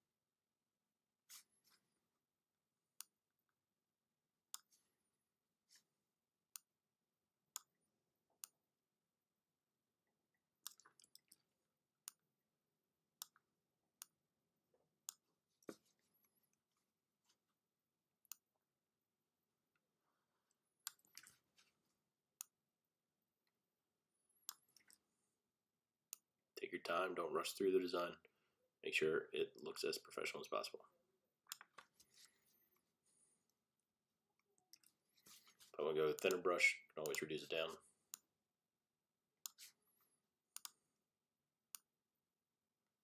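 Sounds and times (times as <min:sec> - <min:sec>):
computer mouse clicking: 0:40.6 - 0:40.8.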